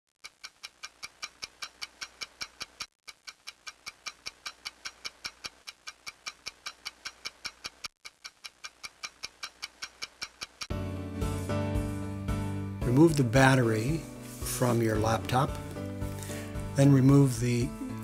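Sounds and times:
clock ticking fast: 0.2 - 10.7.

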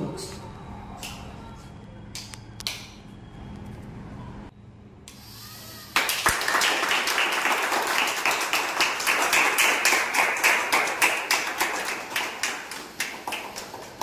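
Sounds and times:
people applauding: 6.0 - 14.0.

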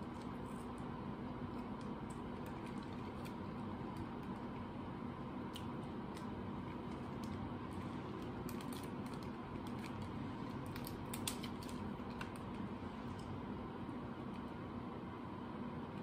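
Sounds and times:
steady low hum: 0.0 - 16.0
crackling plastic bag: 2.4 - 4.4, 6.1 - 12.7
crab legs cracking: 8.3 - 12.6.

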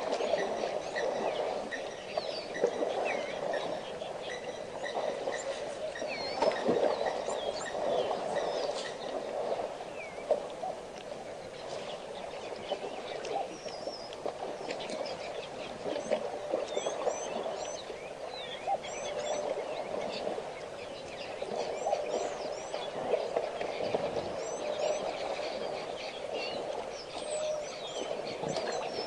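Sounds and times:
elephant calves splashing in mud: 0.0 - 29.0
small birds chirping: 0.1 - 29.0.

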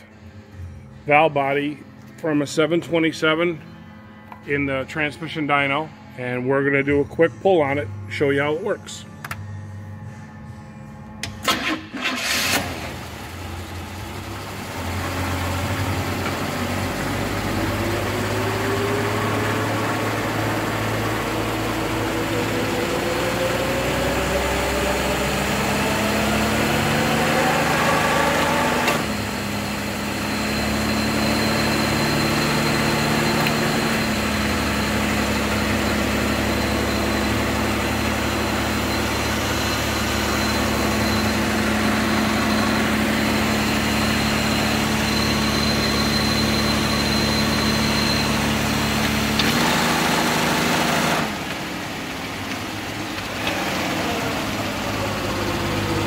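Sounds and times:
click: 9.2 - 9.4
faint high whine: 29.1 - 48.9.

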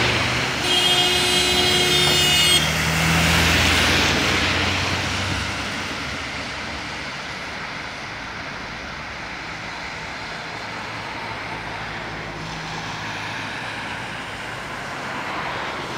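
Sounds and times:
bus engine pulling away: 0.0 - 15.9.

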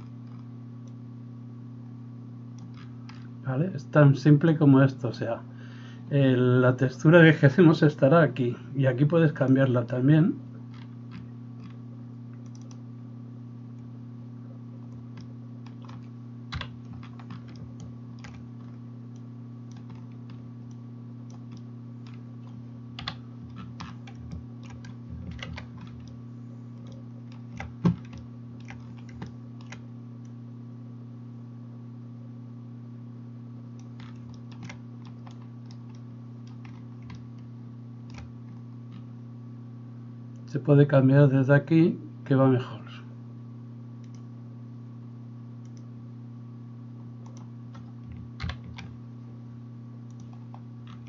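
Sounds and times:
keyboard and mouse clicks: 0.0 - 1.0, 2.6 - 3.3, 10.7 - 12.8, 14.8 - 26.2, 26.8 - 30.4, 33.8 - 37.5, 38.1 - 39.1, 44.0 - 44.3, 47.2 - 48.9, 50.1 - 51.0
steady low hum: 0.0 - 51.0.

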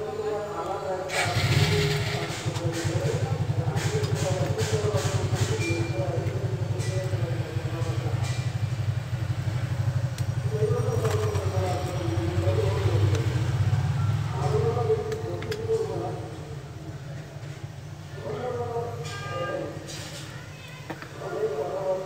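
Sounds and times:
faint background voices: 0.0 - 22.0
engine idling: 1.0 - 18.1.

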